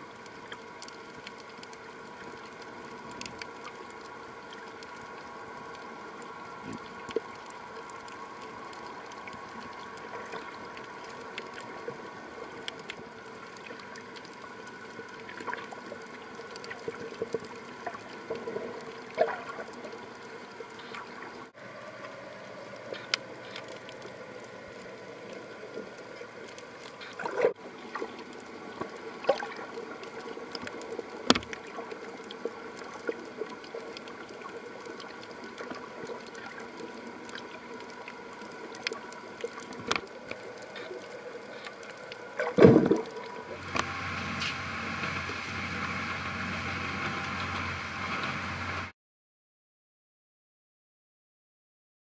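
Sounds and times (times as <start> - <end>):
underwater hiss and hum: 0.0 - 48.9
sharp underwater clicks: 23.0 - 44.6.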